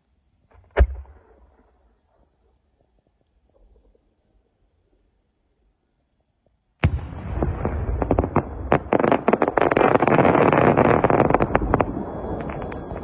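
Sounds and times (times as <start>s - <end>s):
firework pops and cracks: 6.8s - 13.0s.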